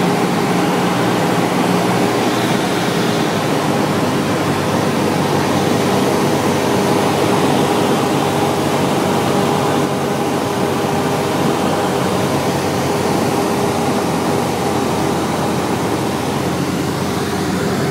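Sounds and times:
aircraft engine and propeller droning: 0:00.0 - 0:17.9
wind rush: 0:00.0 - 0:17.9.

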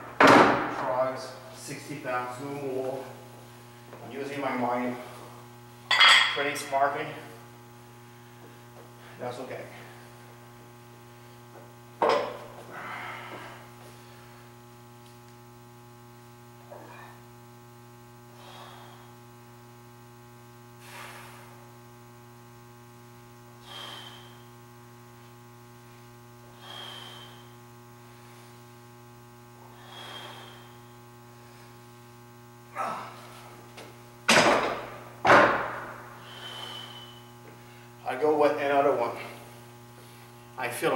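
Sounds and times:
electrical hum: 0:00.0 - 0:40.9
man breathing out hard: 0:23.6 - 0:24.5, 0:26.5 - 0:27.6, 0:29.6 - 0:30.9, 0:36.1 - 0:37.9.

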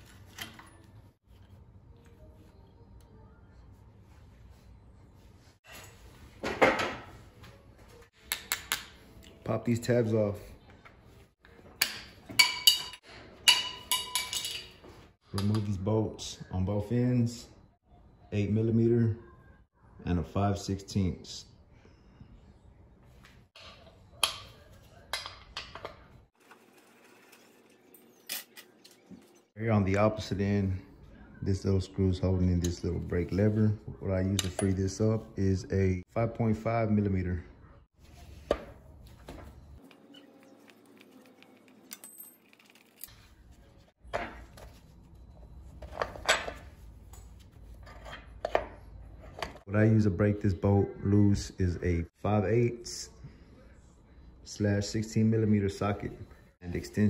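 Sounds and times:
wrench clinking against metal: 0:12.4 - 0:14.7.

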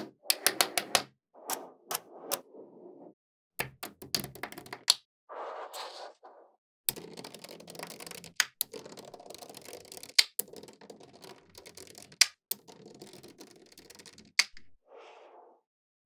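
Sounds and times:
metal balls clicking and rattling: 0:06.9 - 0:14.5
magnetic balls snapping: 0:06.9 - 0:14.7.

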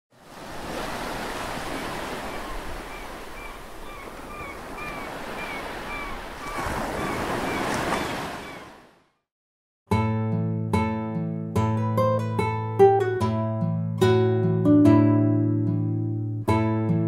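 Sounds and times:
ocean surf washing: 0:00.1 - 0:09.0.

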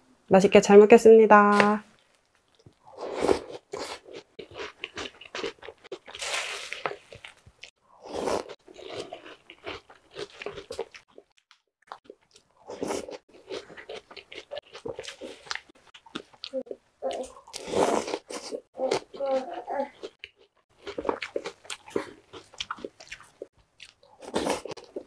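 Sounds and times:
mouth crunching cereal: 0:02.0 - 0:11.3.

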